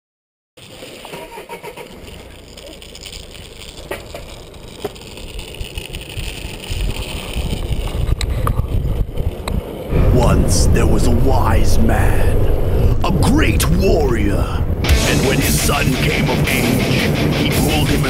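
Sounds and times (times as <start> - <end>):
wheels rolling over asphalt: 0.6 - 10.1, 11.0 - 18.0
sharp ticks: 1.6 - 9.6
wind buffeting microphone: 5.2 - 16.4.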